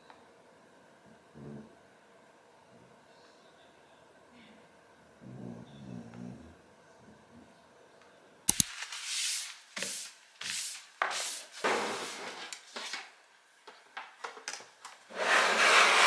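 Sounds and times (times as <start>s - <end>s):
sharp click: 8.5s - 8.9s
objects sliding on a desk: 8.9s - 13.0s, 15.1s - 16.0s
rubbing and scraping strokes: 15.1s - 16.0s.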